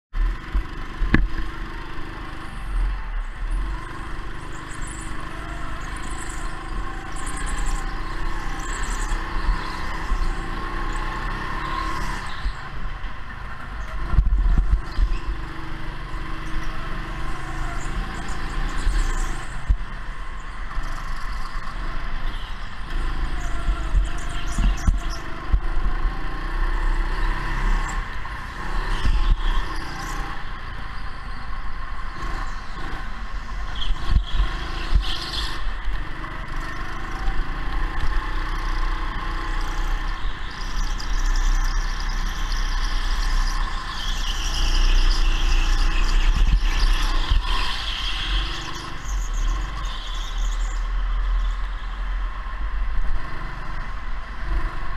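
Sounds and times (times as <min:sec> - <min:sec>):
go-kart motor whine: 0:00.2 - 0:54.9
tire squeals and clatter: 0:00.2 - 0:54.9
wind rumble on microphone: 0:11.7 - 0:54.9.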